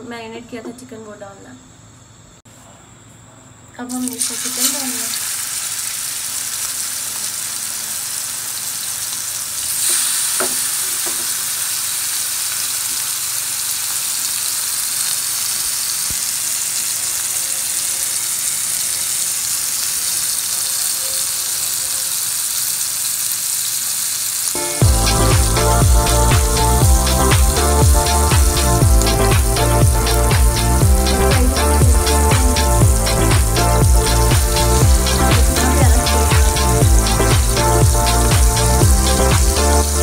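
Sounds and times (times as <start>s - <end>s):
chicken sizzling in hot oil: 3.9s - 40.0s
background music: 24.6s - 40.0s.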